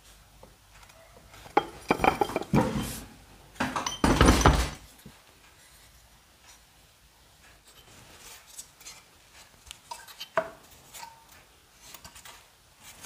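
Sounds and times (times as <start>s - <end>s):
metal parts clattering and clinking: 1.6s - 2.7s.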